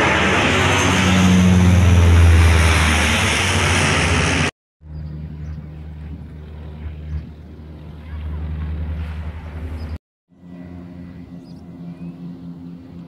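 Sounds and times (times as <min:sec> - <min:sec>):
aircraft engines overhead: 0:00.0 - 0:13.0
faint low drone: 0:03.8 - 0:13.0.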